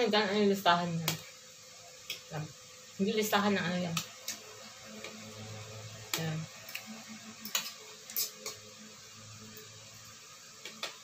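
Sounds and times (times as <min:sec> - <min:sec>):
spoon scraping plates: 0:07.4 - 0:08.6.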